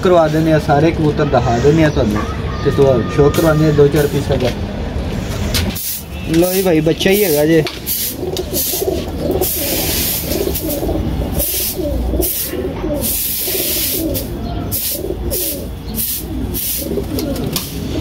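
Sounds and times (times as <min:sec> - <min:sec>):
pigeons cooing: 0:07.9 - 0:18.0.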